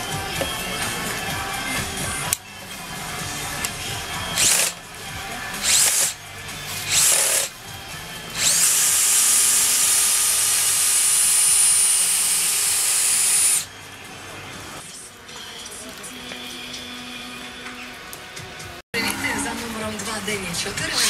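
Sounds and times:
cordless drill motor spinning: 4.3s - 4.8s, 5.6s - 6.2s, 6.8s - 7.5s, 8.3s - 13.7s.

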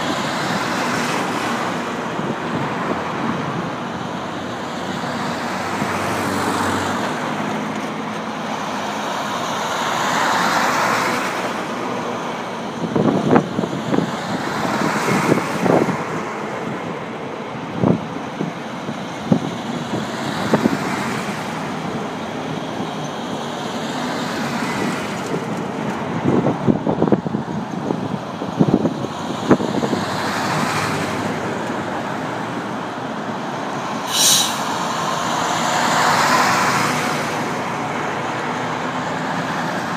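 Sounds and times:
diesel engines: 0.0s - 39.9s
trucks driving past: 0.0s - 39.9s
brief high-pitched sound: 34.1s - 34.8s.

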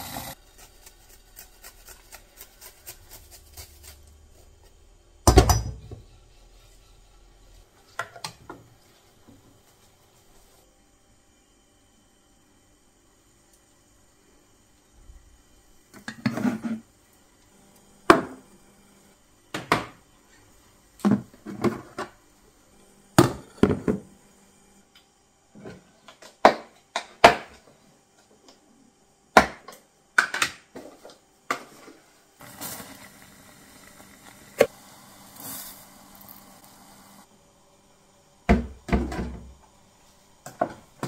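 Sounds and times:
steady hiss: 31.7s - 38.4s.

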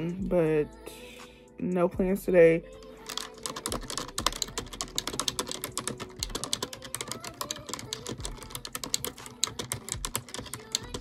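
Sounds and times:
typing on computer keyboard: 2.8s - 11.0s.

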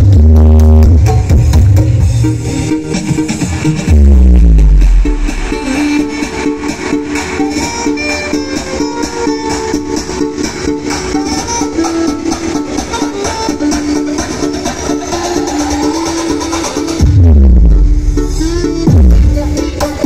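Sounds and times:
loud dance music: 0.0s - 20.0s
deep bass boom: 3.6s - 5.8s, 17.0s - 19.4s.

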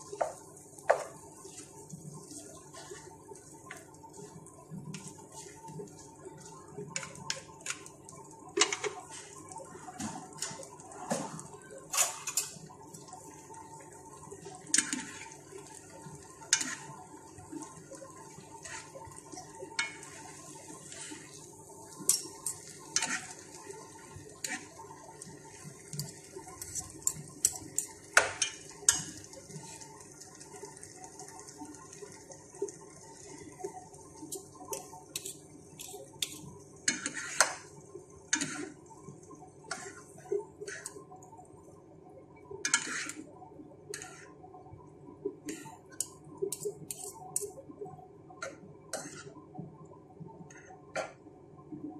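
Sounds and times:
utensils clinking on metal pan: 46.0s - 47.5s.

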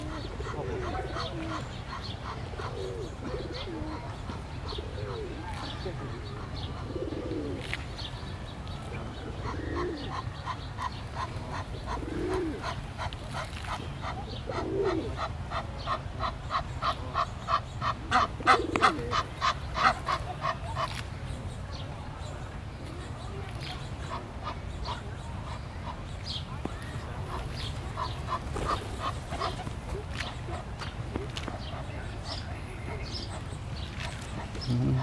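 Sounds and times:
bird cooing: 0.0s - 7.7s, 9.0s - 13.1s, 13.8s - 16.6s, 17.8s - 20.8s, 34.2s - 35.0s.

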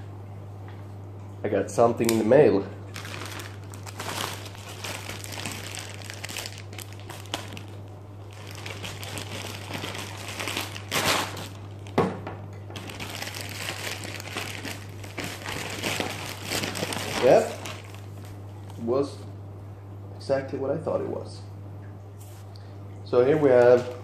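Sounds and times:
low steady hum: 0.0s - 24.0s
plastic packaging crinkling: 2.9s - 12.0s, 12.7s - 18.8s.

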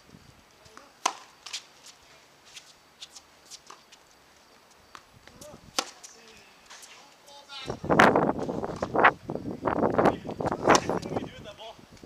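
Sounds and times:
shoes on hard court: 0.5s - 7.2s
racket striking tennis ball: 0.8s - 1.7s, 5.7s - 7.0s, 10.6s - 11.0s.

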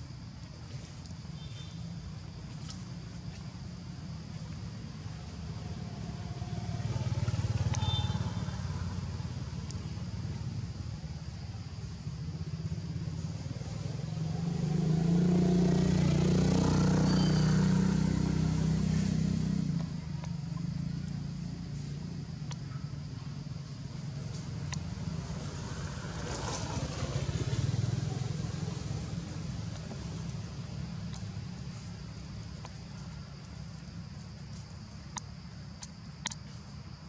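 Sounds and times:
vehicle engine passing: 5.0s - 10.6s, 12.7s - 22.5s, 23.9s - 33.2s.

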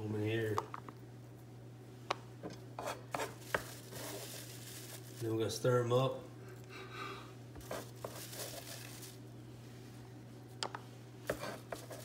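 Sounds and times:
steady low hum: 0.0s - 12.0s
vegetables rustling and squishing: 3.0s - 5.6s, 7.6s - 9.6s, 11.3s - 12.0s.

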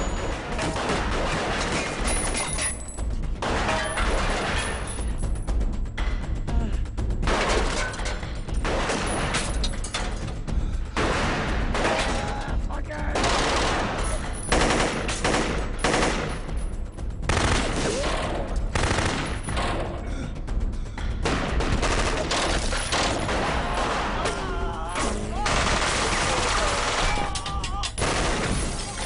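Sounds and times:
film music: 0.0s - 29.0s
rapid handgun gunshots: 0.2s - 2.4s, 7.2s - 9.6s, 10.9s - 12.4s, 13.1s - 19.9s, 21.2s - 24.4s, 25.0s - 27.3s, 28.0s - 29.0s.

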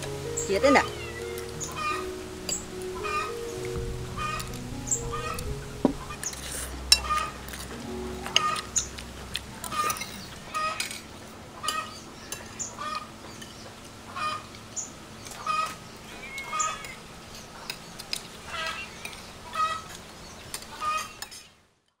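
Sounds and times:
chickens clucking: 0.0s - 11.0s, 14.1s - 14.5s.

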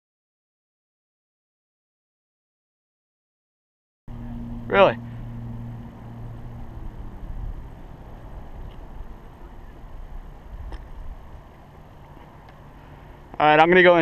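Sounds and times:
low wind rumble on microphone: 4.1s - 12.4s.

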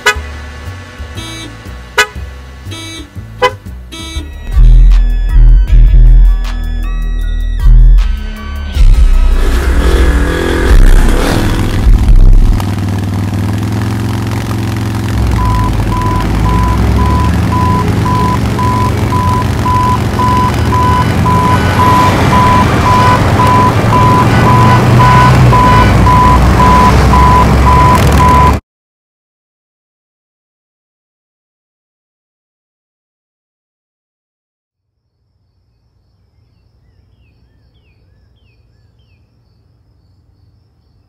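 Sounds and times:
heavy machinery engine rumble: 8.8s - 28.6s
reversing alarm beeping: 15.3s - 28.6s.

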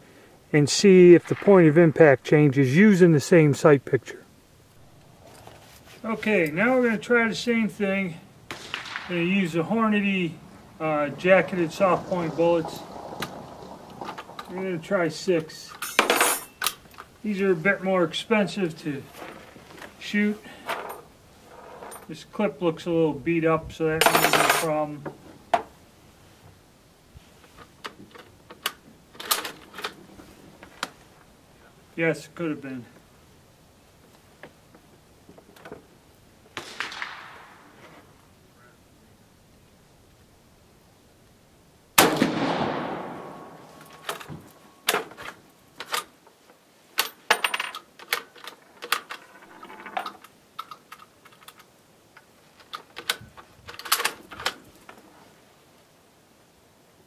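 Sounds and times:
rifle shot: 8.5s - 9.6s, 36.6s - 37.8s, 42.0s - 43.8s
metallic clicks of rifle action: 47.0s - 54.6s.

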